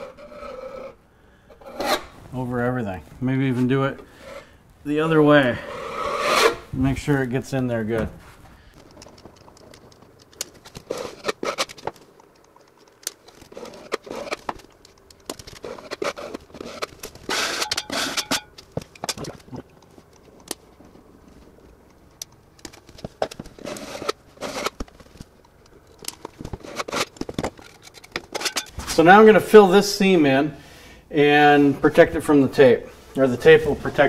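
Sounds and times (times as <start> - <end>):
putty knife scraping: 0.0 - 1.0, 1.6 - 2.2, 5.6 - 6.7, 10.8 - 11.9, 13.3 - 14.6, 15.6 - 18.5, 23.6 - 24.8, 26.5 - 28.8.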